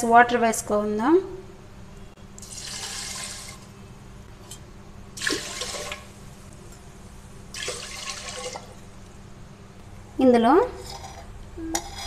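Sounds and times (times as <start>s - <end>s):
water pouring into a pot: 2.4s - 3.7s, 5.2s - 6.2s, 7.5s - 8.8s.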